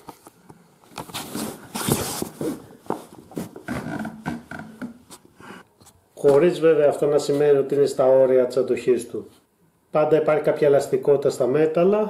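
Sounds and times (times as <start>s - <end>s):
rustling: 0.0s - 6.4s
metal cot frame creaking: 3.6s - 5.1s.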